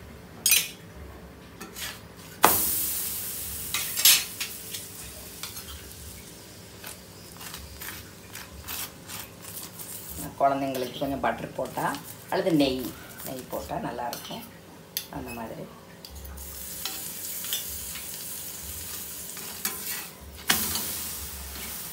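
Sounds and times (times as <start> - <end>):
metal spatula scraping pan: 1.6 - 2.3, 6.8 - 12.0, 19.3 - 21.8
bread sizzling on griddle: 1.6 - 13.6, 16.2 - 21.9.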